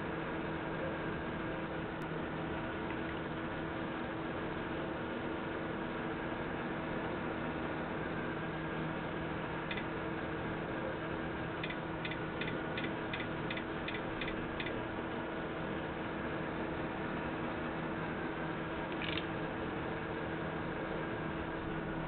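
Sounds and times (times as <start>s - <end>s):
steady hiss and hum: 0.0s - 22.0s.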